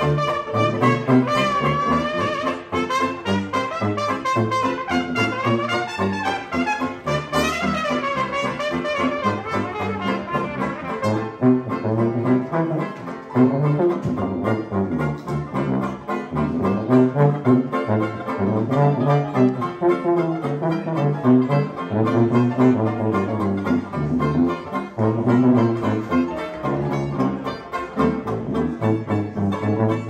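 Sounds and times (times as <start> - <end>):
hot jazz band playing: 0.0 - 30.0
sousaphone bass line: 0.0 - 30.0
trumpet lead: 0.0 - 30.0.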